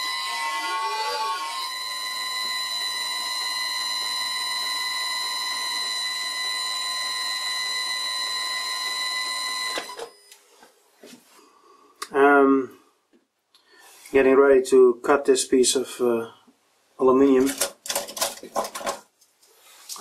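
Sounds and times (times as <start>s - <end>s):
metal lathe whining: 0.0s - 9.8s.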